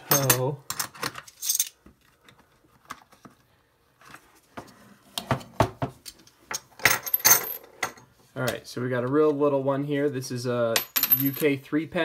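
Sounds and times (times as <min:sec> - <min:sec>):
coins clinking: 0:01.4 - 0:01.8, 0:06.8 - 0:07.7, 0:10.8 - 0:11.5.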